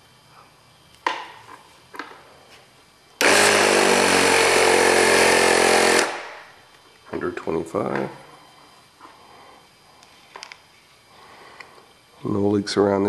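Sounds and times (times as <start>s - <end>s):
compressed air buzzing rush: 3.2s - 6.6s.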